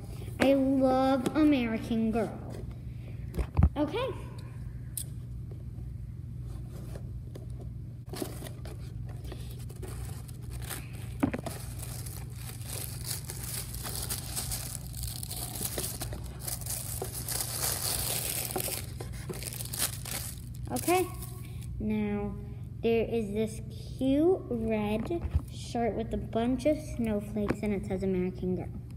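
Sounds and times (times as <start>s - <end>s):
tissue paper crinkling: 8.1s - 21.4s.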